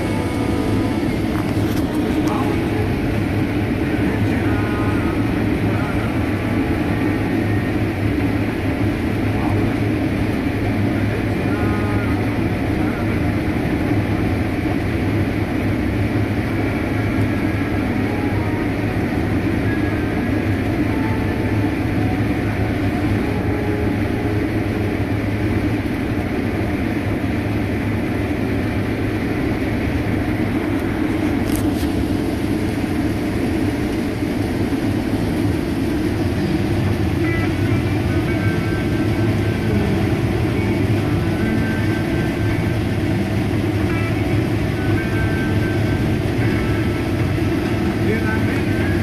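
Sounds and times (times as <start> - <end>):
combine harvester engine drone: 0.0 - 49.0.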